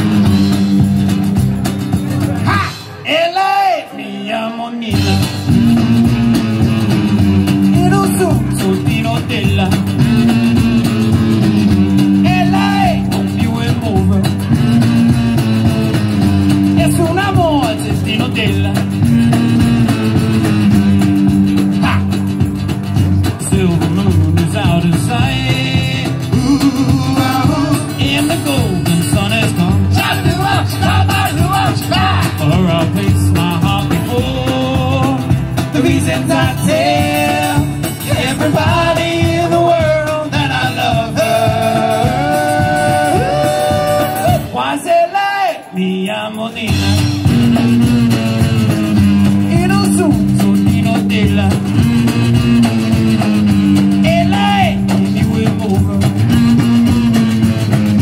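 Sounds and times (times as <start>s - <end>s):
electric guitars: 0.0s - 3.1s, 4.9s - 45.0s, 46.7s - 58.0s
acoustic guitar: 0.0s - 58.0s
drums: 0.0s - 58.0s
live band playing: 0.0s - 58.0s
man singing into a microphone: 2.4s - 5.5s, 7.7s - 10.2s, 12.2s - 14.4s, 16.8s - 19.0s, 23.2s - 47.1s, 49.5s - 51.8s, 54.0s - 56.2s.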